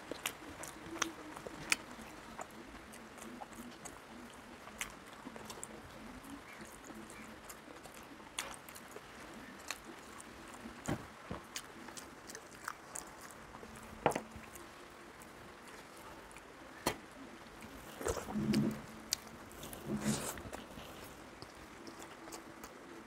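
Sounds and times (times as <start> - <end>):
person chewing food: 0.0 - 23.0.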